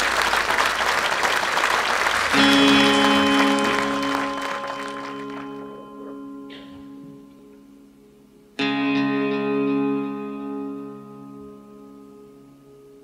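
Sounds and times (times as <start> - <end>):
audience applause: 0.0 - 6.2
sustained chord: 2.4 - 13.0.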